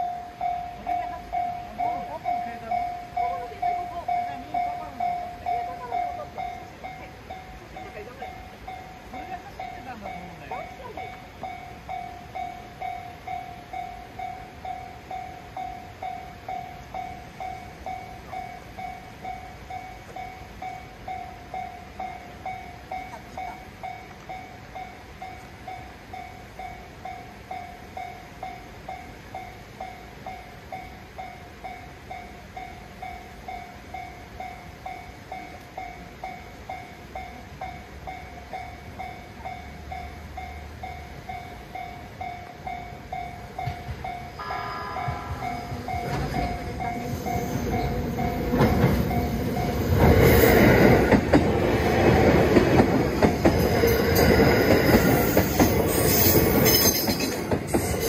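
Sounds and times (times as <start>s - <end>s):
level-crossing bell dinging: 0.0s - 51.4s, 52.7s - 58.0s
train passing with wheel clatter: 0.0s - 58.0s
train horn: 44.4s - 46.7s.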